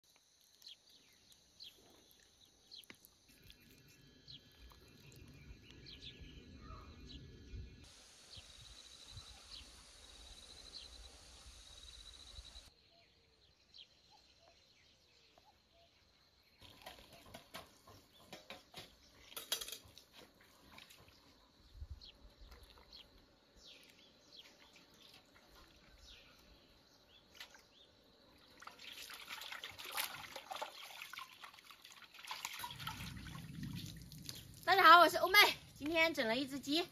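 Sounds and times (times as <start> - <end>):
bird chirps: 0.6 - 19.5.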